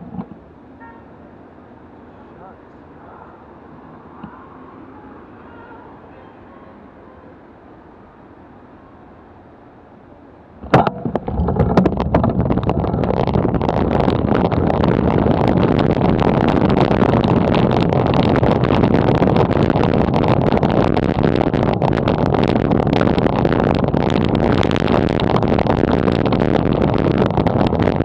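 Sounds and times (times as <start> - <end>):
bicycle road rattle: 0.0 - 0.5, 10.6 - 28.0
wind rush: 10.6 - 28.0.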